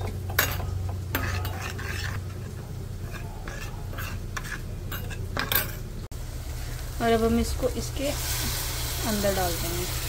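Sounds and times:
spoon scraping in a bowl: 0.0 - 5.9.

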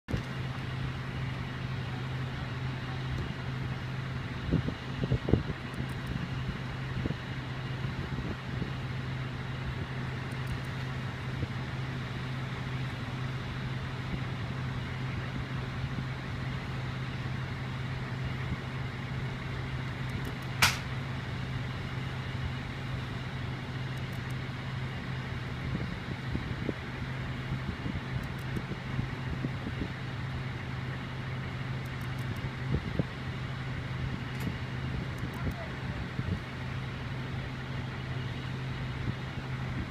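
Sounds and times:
vehicle engine idling: 0.0 - 39.9
sharp click: 20.2 - 20.9.

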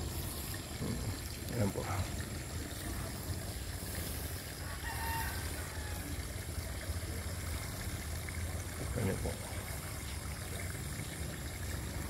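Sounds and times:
rooster crowing faintly: 4.6 - 6.2.

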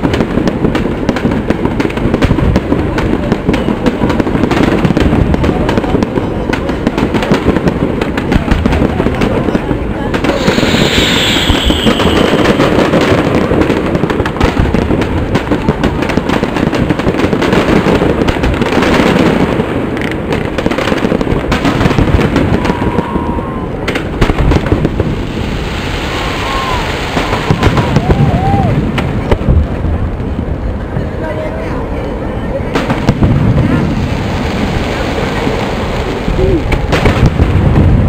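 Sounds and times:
fireworks bursting and crackling: 0.0 - 38.0
firework falling whistle: 10.3 - 13.2, 22.3 - 23.9, 25.7 - 28.8.

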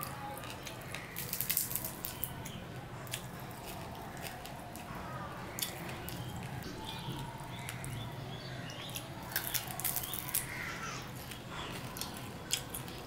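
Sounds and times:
fingers mixing rice and fish: 0.0 - 13.0
wet squishing with crackly clicks: 0.0 - 13.0.

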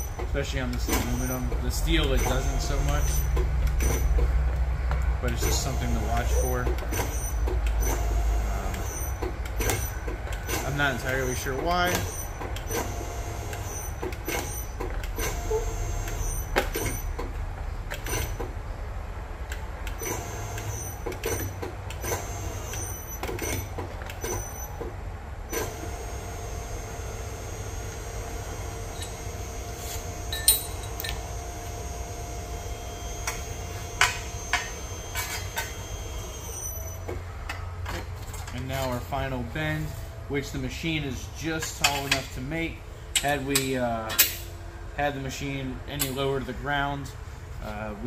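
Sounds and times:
machine whine: 0.0 - 4.2, 25.5 - 37.6
machine humming: 5.2 - 17.2, 25.4 - 37.2
clicks and clanks of metal tube: 43.1 - 44.5.

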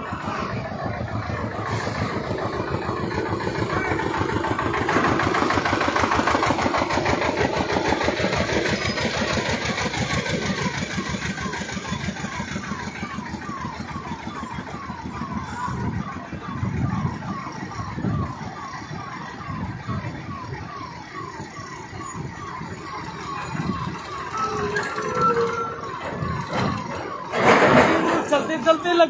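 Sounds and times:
motor engine rattling: 0.0 - 15.3.

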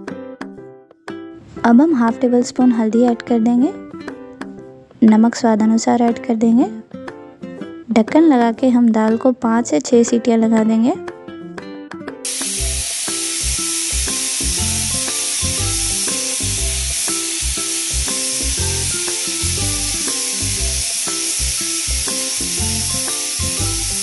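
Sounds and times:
background music with a beat: 3.9 - 4.8, 11.0 - 24.0
pressure cooker hissing steam: 12.3 - 24.0.

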